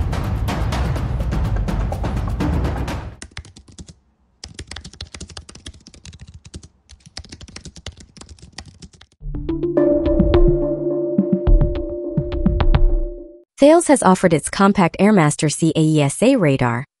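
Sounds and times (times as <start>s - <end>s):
loud music with drum hits: 0.0s - 3.2s
keyboard typing: 3.2s - 9.2s.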